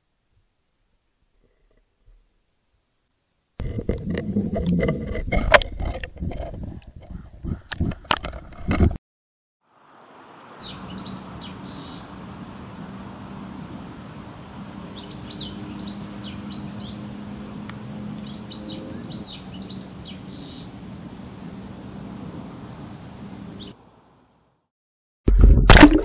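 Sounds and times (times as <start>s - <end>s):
outdoor hiss: 0.0s - 3.6s, 9.6s - 18.5s, 19.1s - 24.6s
small birds chirping: 10.6s - 12.2s, 14.8s - 20.9s, 23.4s - 23.8s.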